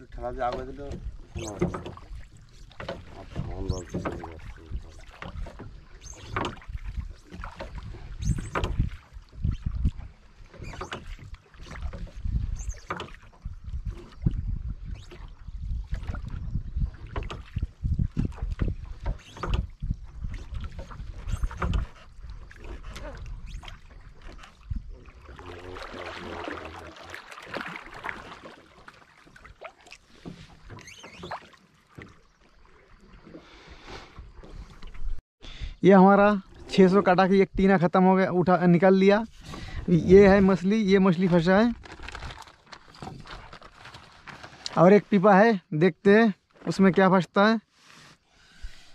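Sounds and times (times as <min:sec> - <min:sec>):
wind on microphone: 0:00.0 - 0:27.0, 0:39.1 - 0:42.4
oar splashing in water: 0:00.0 - 0:35.2, 0:38.4 - 0:45.4
knocks and rustles of fishing line: 0:00.4 - 0:32.6, 0:39.3 - 0:45.1, 0:46.4 - 0:47.1.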